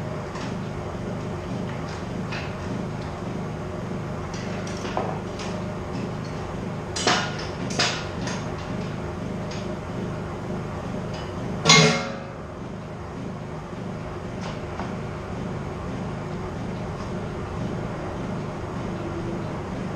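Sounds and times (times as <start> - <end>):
steady low hum: 0.0 - 19.9
hand tools clinking on metal: 11.1 - 12.2
sharp metallic knocks: 11.2 - 12.4.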